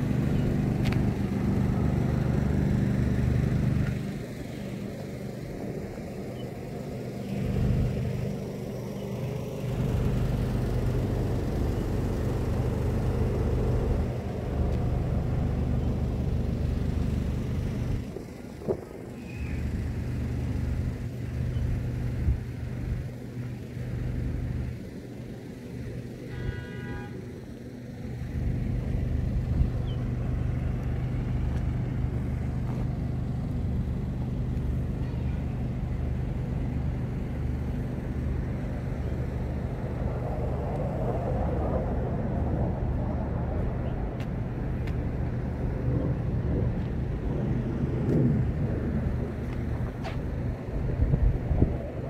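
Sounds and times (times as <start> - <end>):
wind buffeting microphone: 17.5 - 20.0, 39.1 - 52.0.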